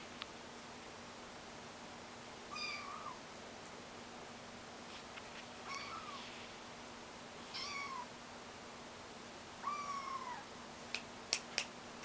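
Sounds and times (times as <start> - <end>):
kitten mewing: 7.5 - 8.1, 9.6 - 10.5.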